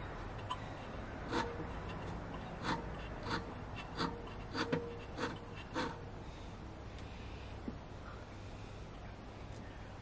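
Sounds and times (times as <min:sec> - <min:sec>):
blade rasping on polishing wheel: 0:01.2 - 0:06.1.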